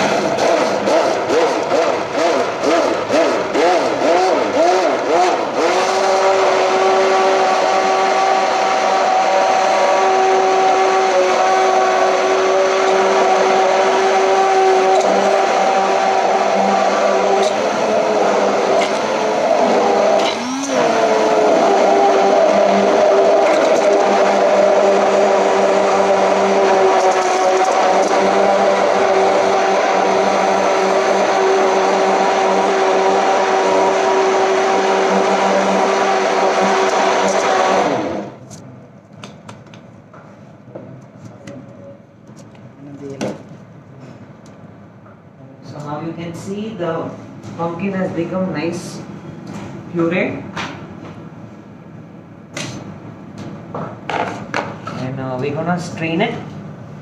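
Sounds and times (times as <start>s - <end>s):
immersion blender running: 0.0s - 38.4s.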